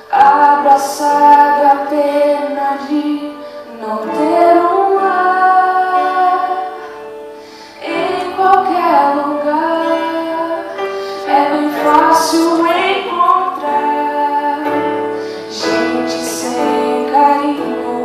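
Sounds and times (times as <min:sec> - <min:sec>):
musical accompaniment: 0:00.0 - 0:18.0
woman singing into microphone: 0:00.0 - 0:18.0.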